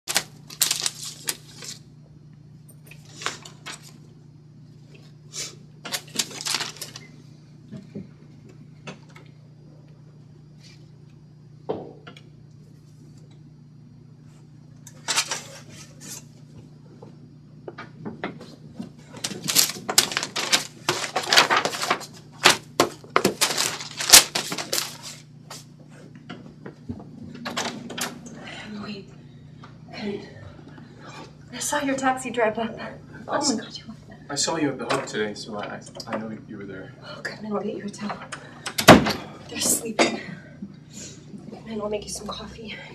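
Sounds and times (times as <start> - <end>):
papers rustling and shuffling: 0.0 - 1.9, 2.9 - 4.1, 5.8 - 7.1, 14.9 - 16.6, 18.3 - 28.1
steady low hum: 0.0 - 42.9.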